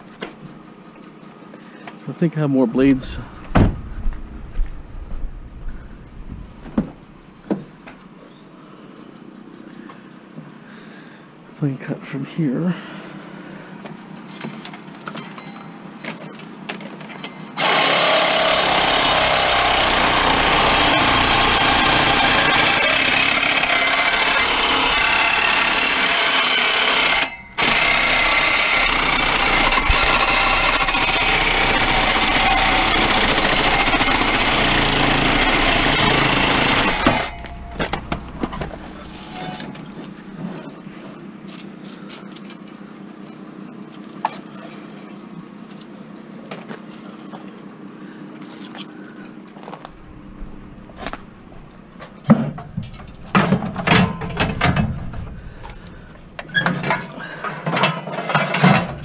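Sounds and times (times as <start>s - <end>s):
reciprocating saw cutting metal: 17.6s - 39.7s.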